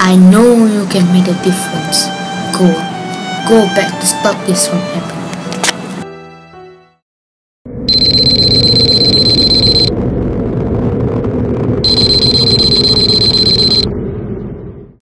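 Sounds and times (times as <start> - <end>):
loud rumbling: 7.7 - 15.0
high alarm tone: 7.8 - 9.9, 11.8 - 14.0.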